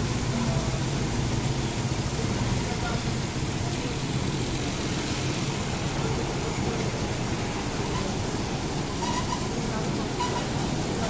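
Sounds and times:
car wash rushing noise: 0.0s - 11.0s.

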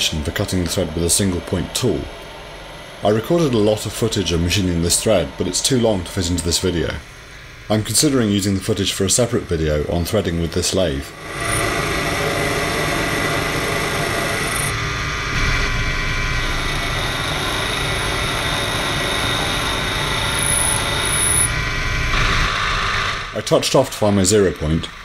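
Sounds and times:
mini lathe motor humming: 11.2s - 22.2s.

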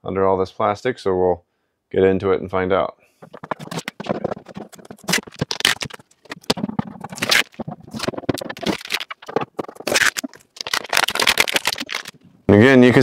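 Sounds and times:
tape and plastic film peeling: 3.2s - 12.2s.

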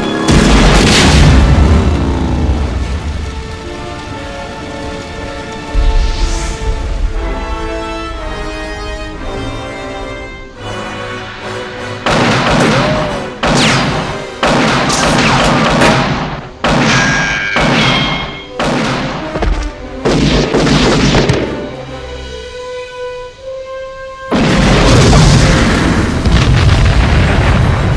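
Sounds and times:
film score music: 0.0s - 27.9s
heavy booms and impacts: 0.2s - 3.6s, 5.6s - 10.0s, 24.3s - 27.9s.

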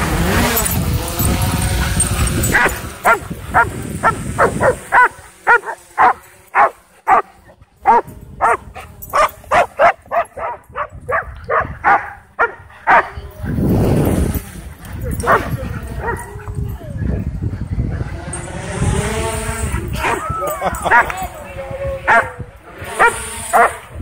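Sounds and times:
dogs barking rapidly: 0.2s - 16.7s, 17.6s - 21.2s, 22.1s - 24.0s.

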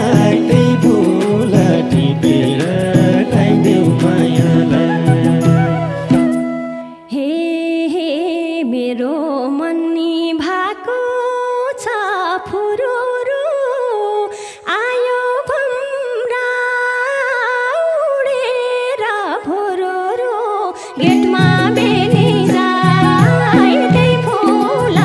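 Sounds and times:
light musical accompaniment: 0.0s - 7.2s, 20.8s - 25.0s
woman singing folk melody: 0.0s - 25.0s.

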